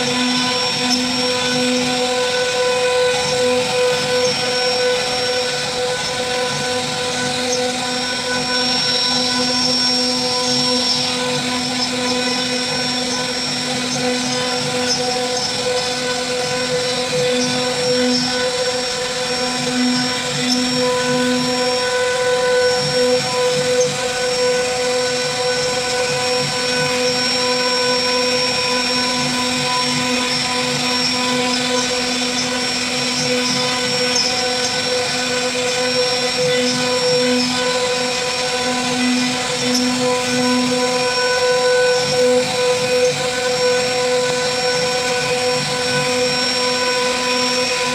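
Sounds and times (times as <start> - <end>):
wood router spindle whine: 0.0 - 47.9.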